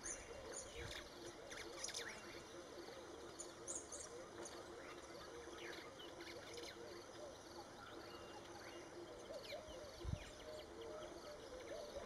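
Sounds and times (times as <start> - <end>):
soft outdoor hiss: 0.0 - 12.0.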